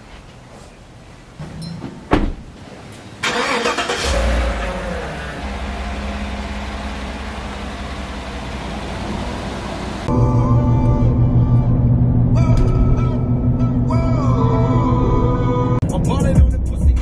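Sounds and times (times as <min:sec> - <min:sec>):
car door shutting: 0:01.4 - 0:02.5
engine starting and idling: 0:03.2 - 0:10.2.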